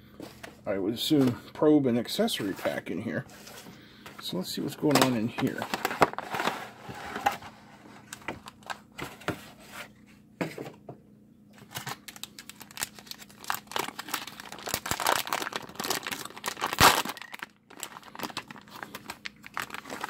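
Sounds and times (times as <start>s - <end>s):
plastic bags crinkling: 4.6s - 6.8s, 11.6s - 20.0s.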